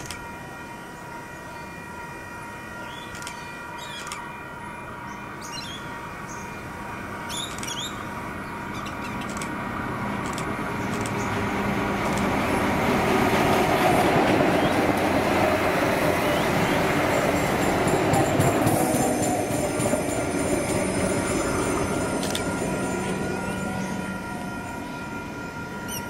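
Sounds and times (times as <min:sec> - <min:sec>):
steady high ringing tones: 0:00.0 - 0:09.1, 0:15.6 - 0:26.0
railcar running past: 0:00.0 - 0:26.0.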